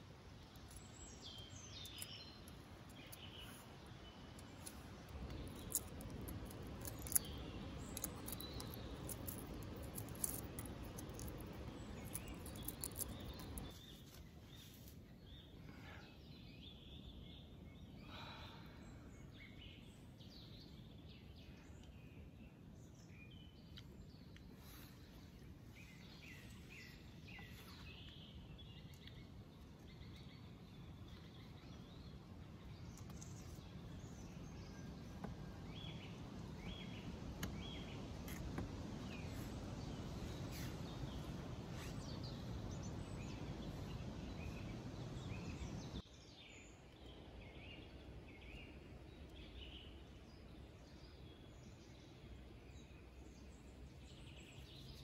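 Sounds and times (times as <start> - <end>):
faint birds chirping: 0.0 - 55.0
eggshell cracking and peeling: 4.4 - 13.7.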